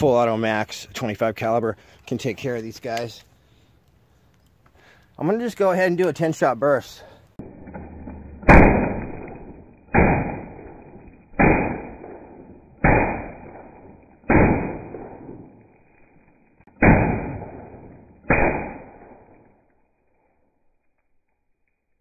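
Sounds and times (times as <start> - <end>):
slowed air rifle shots: 7.4 - 19.6.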